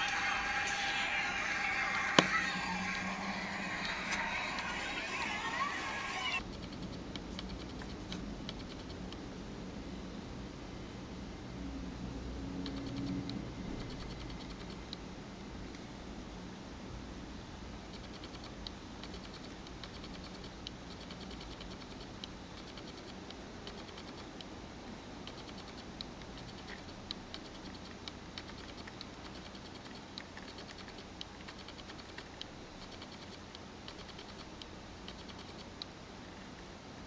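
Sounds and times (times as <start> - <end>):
fingertip tapping touchscreen: 25.3 - 35.9.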